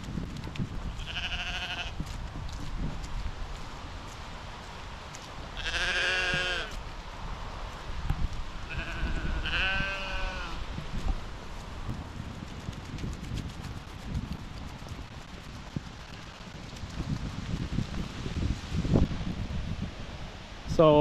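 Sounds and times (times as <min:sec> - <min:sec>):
livestock bleating: 0:01.0 - 0:02.0, 0:05.6 - 0:06.8, 0:08.7 - 0:10.6.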